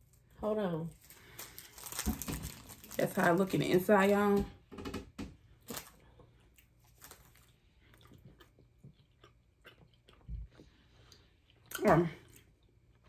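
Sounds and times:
faint chewing: 5.6s - 13.0s.

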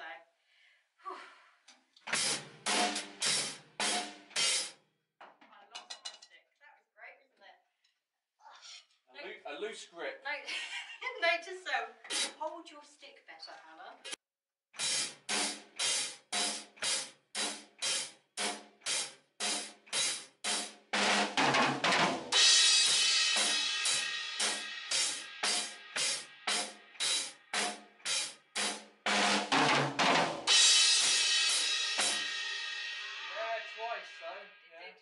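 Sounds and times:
cymbal crash: 2.1s - 4.7s, 14.8s - 34.3s
drum beat: 2.1s - 4.8s, 12.1s - 12.4s, 14.8s - 34.1s
cymbals ringing: 2.2s - 4.7s, 22.4s - 34.7s.

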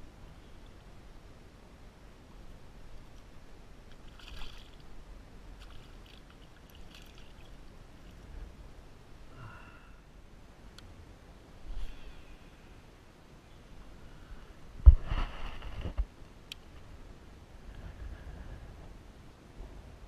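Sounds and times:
fish splashing in water: 4.0s - 4.8s, 5.6s - 7.6s.

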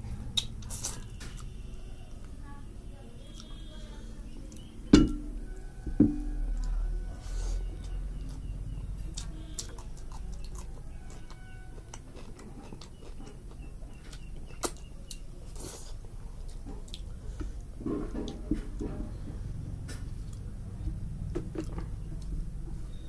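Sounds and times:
chewing and lip smacks: 7.7s - 17.2s.

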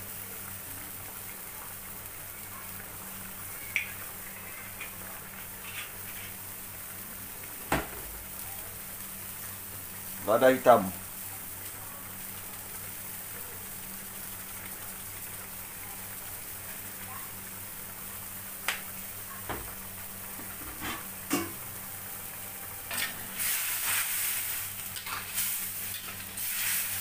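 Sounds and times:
metal spatula scraping wok: 5.6s - 6.4s.

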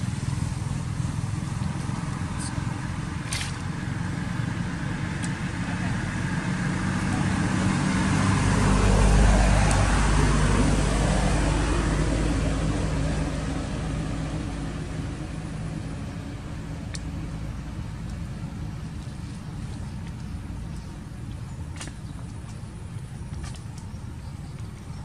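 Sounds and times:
passing vehicle engine rumble: 0.0s - 25.0s.

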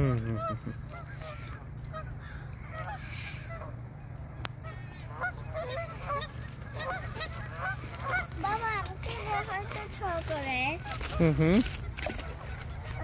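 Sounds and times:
geese honking: 0.0s - 13.0s
steady low rumble: 0.0s - 13.0s.

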